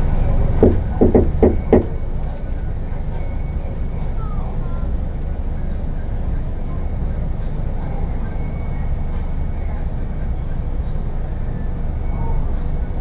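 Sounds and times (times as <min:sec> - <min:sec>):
low background rumble: 0:00.0 - 0:13.0
knocks on a door: 0:00.6 - 0:02.0.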